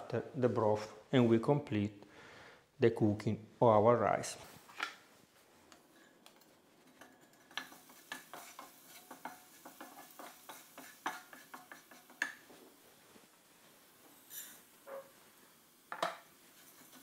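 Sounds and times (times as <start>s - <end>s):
wooden spatula scraping a pan: 5.7s - 13.3s, 13.9s - 17.0s
rice pouring hiss: 7.6s - 17.0s.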